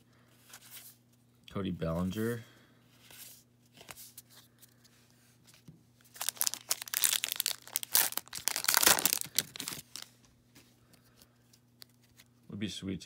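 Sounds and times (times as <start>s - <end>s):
wrapper tearing open: 6.1s - 10.1s.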